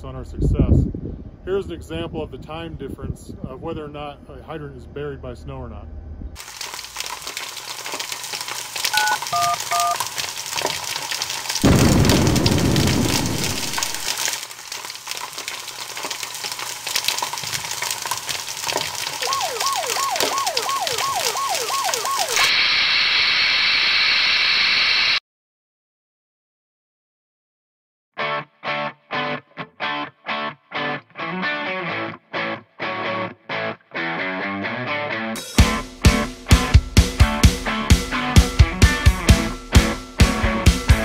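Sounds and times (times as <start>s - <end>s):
fire crackling: 6.4s - 24.2s
phone keypad beeps: 8.9s - 10.0s
siren yelping: 9.0s - 10.0s, 19.2s - 22.8s
fire whoosh: 11.6s - 14.1s.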